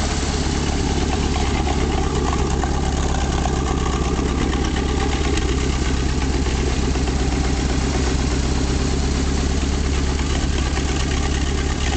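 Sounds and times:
engine running steadily: 0.0s - 11.9s.

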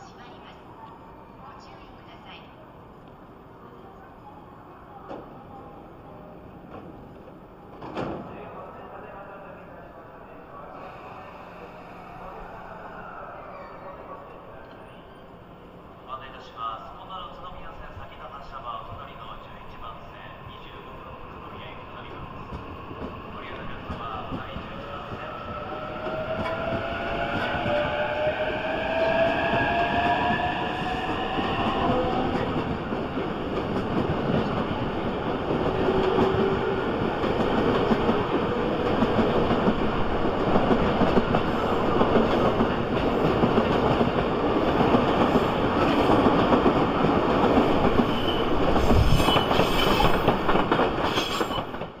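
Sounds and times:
train wheels clattering on rails: 35.4s - 52.0s.

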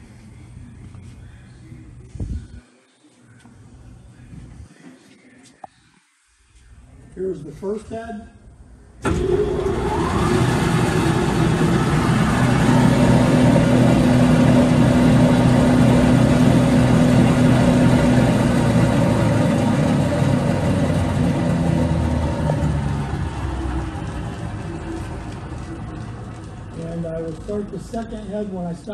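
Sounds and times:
belt sander machine hum: 9.0s - 28.5s.

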